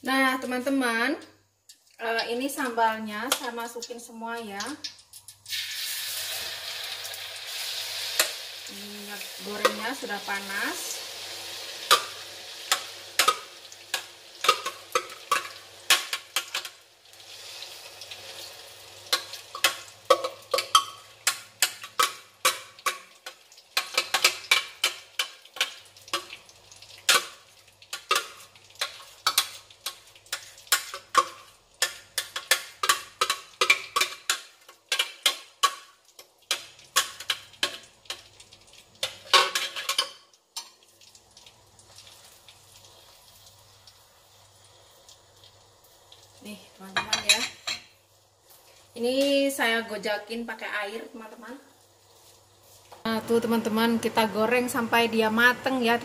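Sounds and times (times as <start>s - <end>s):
paste sizzling in hot oil: 1.7s - 56.0s
metal spoon tapping and scraping: 11.9s - 16.7s, 19.1s - 26.4s, 27.9s - 35.9s, 36.5s - 38.2s.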